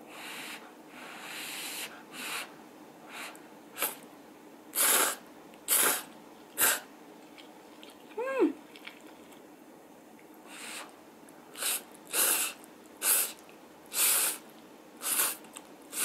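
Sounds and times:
person blowing on food: 4.8s - 6.9s, 11.6s - 14.4s, 15.0s - 16.0s.

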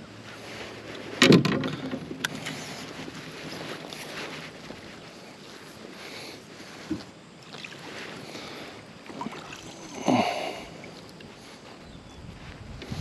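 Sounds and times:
water around boat: 0.0s - 13.0s
knocks and thumps on boat: 1.2s - 2.3s
wind on microphone: 11.7s - 13.0s.

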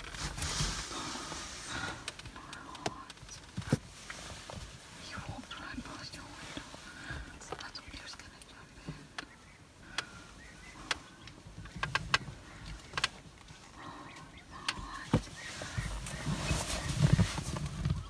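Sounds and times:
clicks and knocks in vehicle cab: 10.8s - 13.4s, 14.6s - 15.4s.

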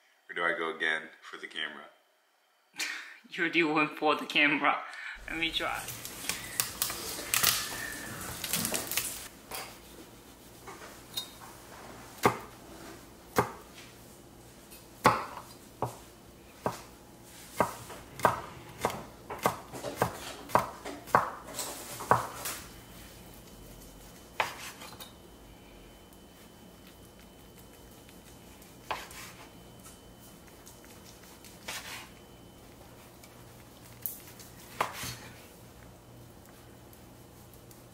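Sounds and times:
knife chopping on cutting board: 12.2s - 12.5s, 13.3s - 13.6s, 15.0s - 16.0s, 16.6s - 16.9s, 17.5s - 22.4s, 24.4s - 25.0s, 28.8s - 29.4s, 34.7s - 35.3s.

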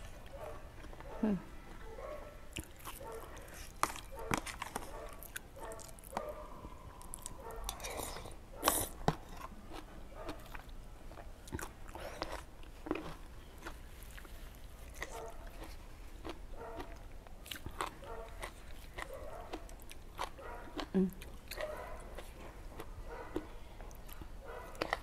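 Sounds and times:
wet chewing and crunching: 0.0s - 25.0s.

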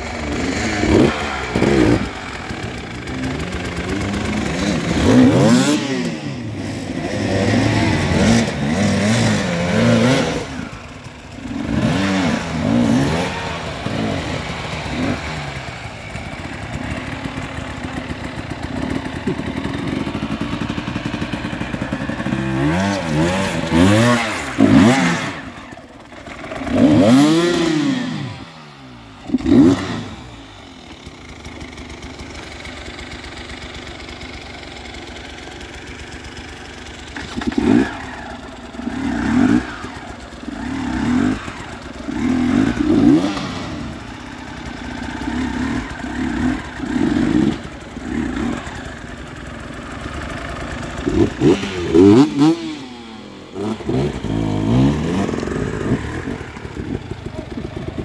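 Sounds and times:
dirt bike engines revving: 0.0s - 58.0s.

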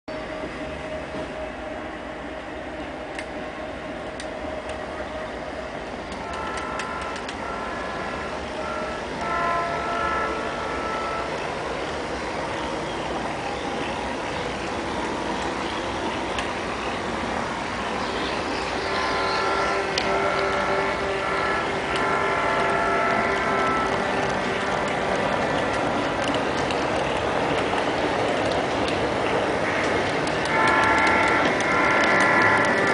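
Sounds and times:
model train rumbling on track: 0.1s - 32.9s
multi-tone air horn blasts: 6.1s - 11.7s, 18.7s - 26.6s, 29.6s - 32.9s.

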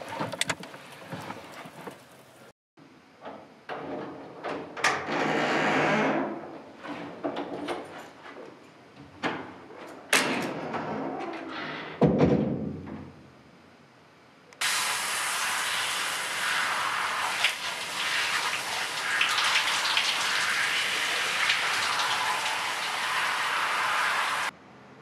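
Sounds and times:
knocks and clunks: 0.0s - 2.1s, 12.0s - 13.2s.

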